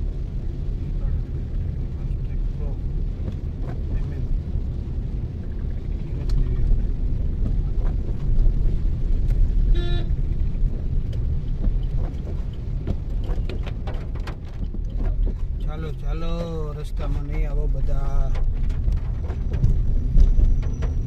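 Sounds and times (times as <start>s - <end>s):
car driving on wet road: 0.0s - 21.0s
short car horn beep: 9.7s - 10.2s.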